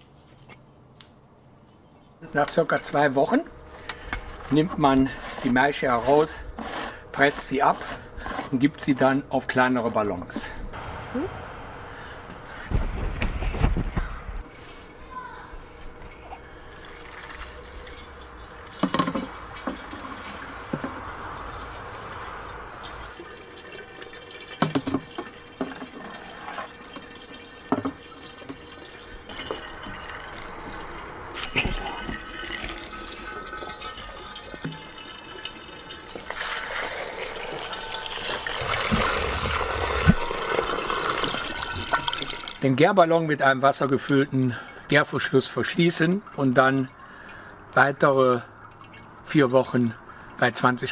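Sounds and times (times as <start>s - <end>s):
juice splashing into glass jug: 22.8s - 42.7s
juice running into plastic funnel: 23.2s - 42.6s.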